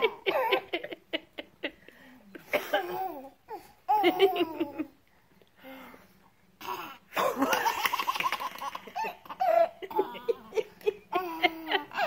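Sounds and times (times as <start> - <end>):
baby laughing: 6.6 - 12.0.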